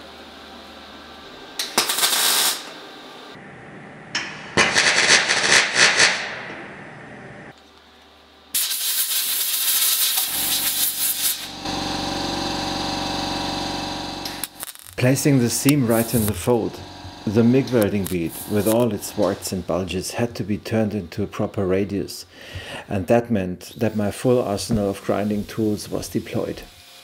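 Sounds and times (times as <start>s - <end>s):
welder arc crackling: 1.6s - 2.8s, 8.6s - 21.0s
steady hum: 9.4s - 26.6s.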